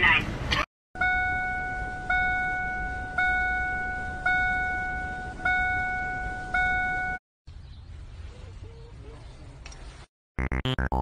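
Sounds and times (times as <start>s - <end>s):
seatbelt warning chime dinging: 1.0s - 7.2s.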